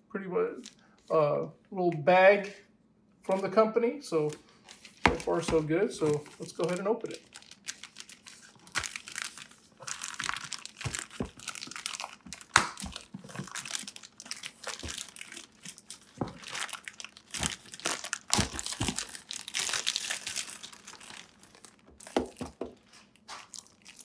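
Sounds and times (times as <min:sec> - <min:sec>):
plastic bag crinkling: 0:04.6 - 0:24.0
plastic bag ripping: 0:04.7 - 0:22.4.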